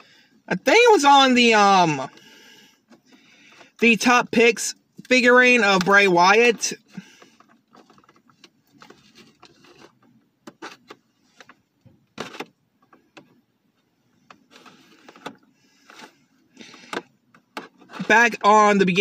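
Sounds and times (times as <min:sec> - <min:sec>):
packaging crinkling and rustling: 0:06.8 - 0:13.0, 0:14.2 - 0:18.4.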